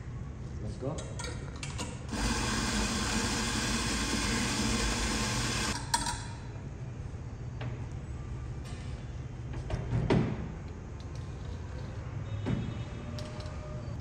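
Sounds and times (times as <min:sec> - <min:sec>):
electric coffee grinder running: 0:02.1 - 0:05.8.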